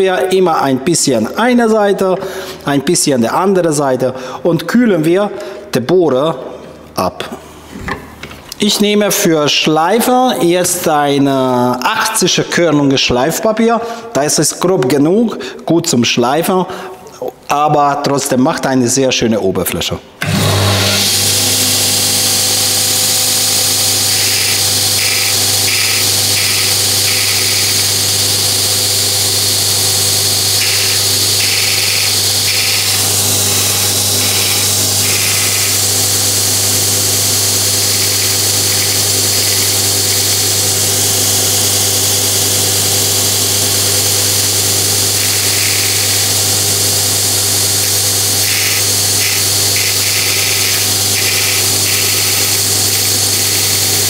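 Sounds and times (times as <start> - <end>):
belt grinder motor humming: 20.2 - 54.0
drill bit grinding on belt: 20.2 - 54.0.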